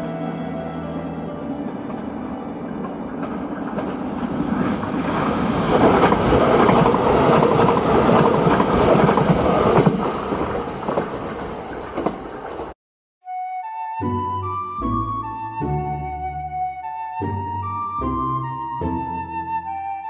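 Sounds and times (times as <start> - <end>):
electric train passing: 0.0 - 12.8.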